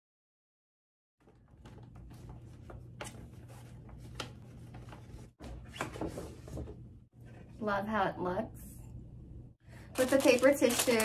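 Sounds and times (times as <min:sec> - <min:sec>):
steady low hum: 0:06.6 - 0:10.0.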